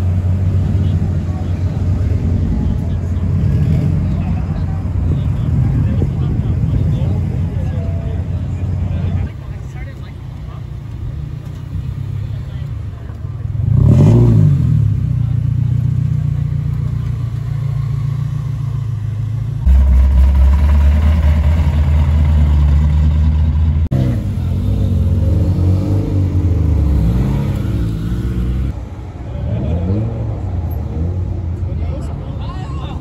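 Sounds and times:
deep exhaust rumble: 0.0s - 28.8s
cars driving past: 0.0s - 33.0s
engine revving: 13.5s - 16.2s, 19.6s - 28.8s.

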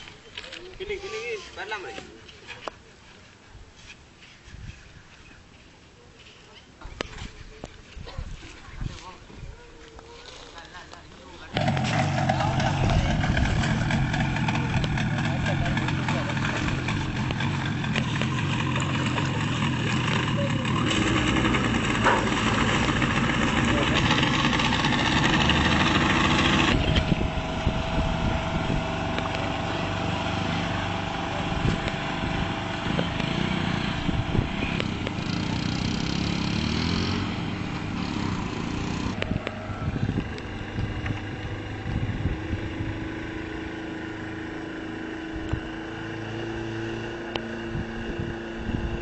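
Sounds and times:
ferry engine running: 11.5s - 49.0s.

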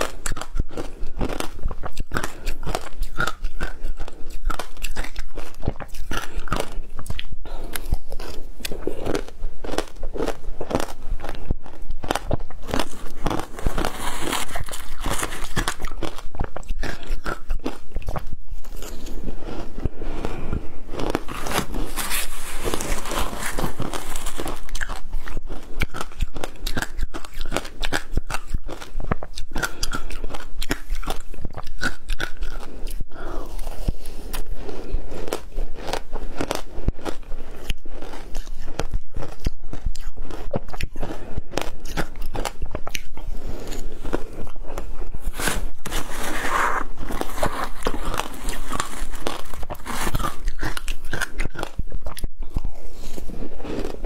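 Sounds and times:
crunching shaved ice: 12.1s - 17.3s, 21.0s - 28.8s, 45.3s - 51.8s.

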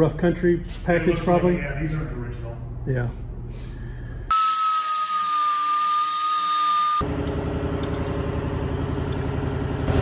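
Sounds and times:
power tool whining: 4.3s - 7.1s
low mechanical rumble: 7.0s - 10.0s.

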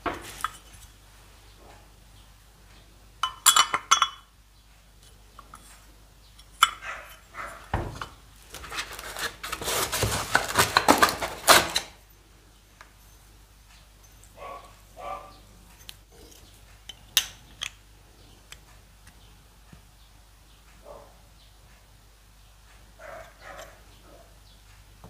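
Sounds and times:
knocks on workbench: 7.7s - 8.1s
metal parts clattering and rustling: 7.9s - 12.0s.

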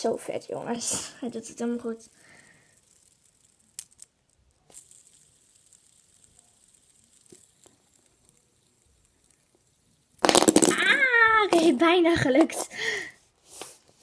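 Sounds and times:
fidget spinner clicks and taps: 2.8s - 10.3s.

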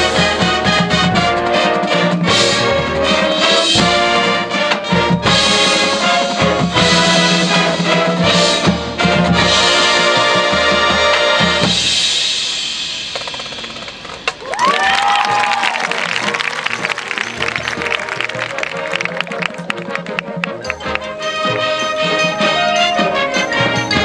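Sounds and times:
brass: 0.0s - 12.8s, 14.7s - 24.0s
drums: 0.0s - 24.0s.

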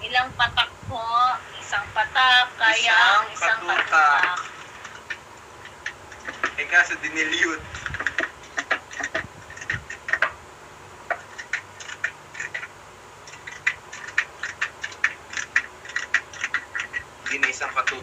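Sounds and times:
glass squeaking and clinking: 11.1s - 18.0s.

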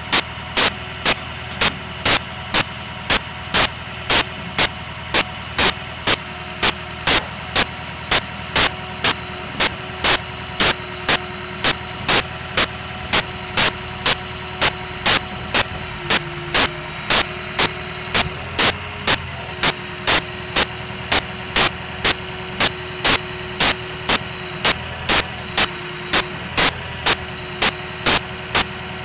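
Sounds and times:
loud short bursts of noise: 0.0s - 28.7s
truck engine idling: 0.0s - 29.0s.

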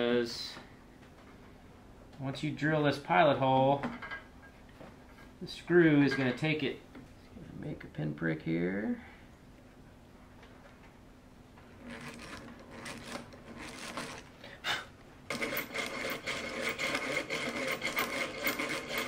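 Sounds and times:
drill bit rasping into wood: 11.8s - 14.2s, 15.3s - 19.0s
hand drill gears whirring: 11.8s - 14.3s, 15.3s - 19.0s.

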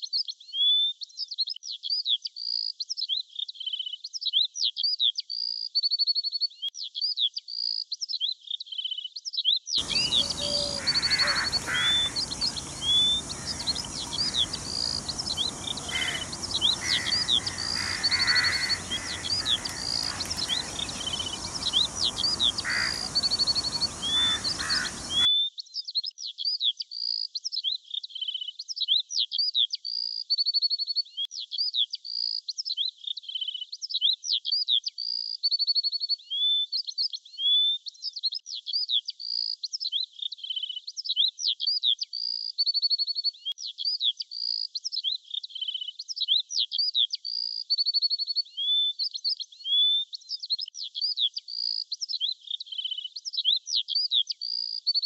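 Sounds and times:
outdoor background noise: 9.8s - 25.3s
small songbirds chirping: 9.8s - 25.3s.

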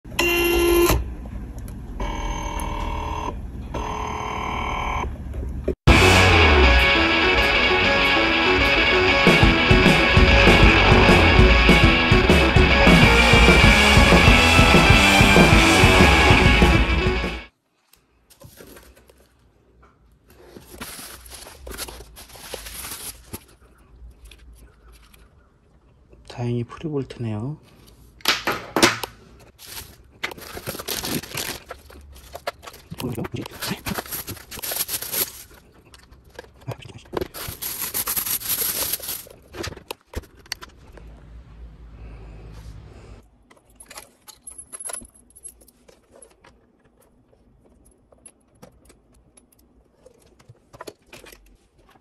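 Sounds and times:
music: 5.9s - 17.5s
plastic and cardboard packing rustling: 17.7s - 25.3s, 29.3s - 41.0s.

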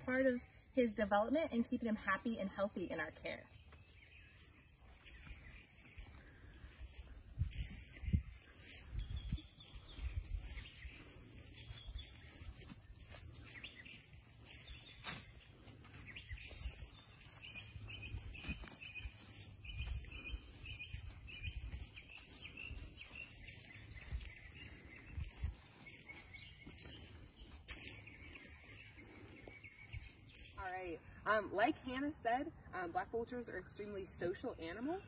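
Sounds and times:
small bird chirping: 7.6s - 30.6s.

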